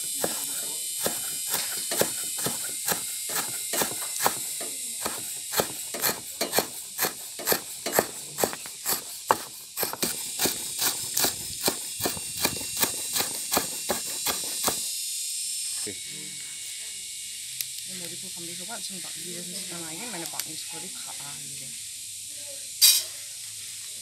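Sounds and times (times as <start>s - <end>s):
steady high hiss: 0.0s - 24.0s
cleaver chopping on wooden board: 0.2s - 14.9s.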